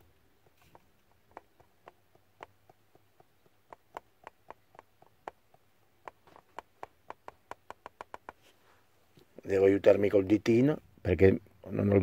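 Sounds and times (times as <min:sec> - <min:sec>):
coffee box tapping on filter holder: 0:01.2 - 0:08.4.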